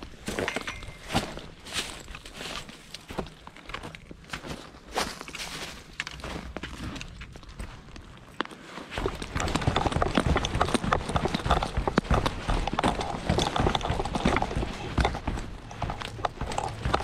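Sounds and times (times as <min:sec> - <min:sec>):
footsteps on rough trail: 0:00.0 - 0:17.0.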